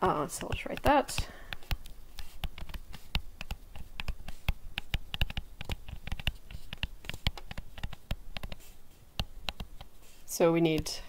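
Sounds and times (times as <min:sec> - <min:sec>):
stylus tapping on tablet screen: 0:00.1 - 0:11.0.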